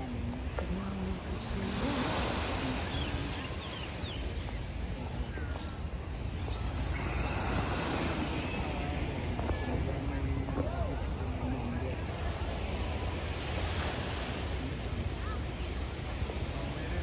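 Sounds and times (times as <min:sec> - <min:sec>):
background noise wash: 0:00.0 - 0:17.0
wind rumbling on microphone: 0:00.0 - 0:17.0
faint high chirps: 0:02.7 - 0:09.8.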